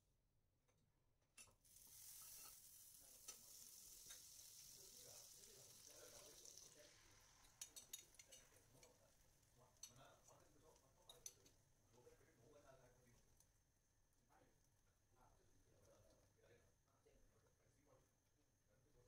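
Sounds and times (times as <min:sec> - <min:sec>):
butter sizzling in a frying pan: 0:01.4 - 0:11.7.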